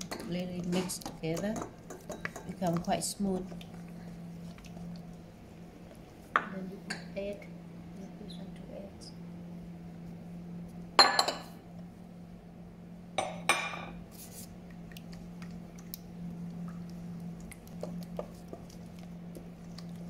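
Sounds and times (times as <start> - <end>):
kitchenware clinking on steel bowl: 0.0 - 2.6
spatula tapping while stirring: 0.1 - 3.5.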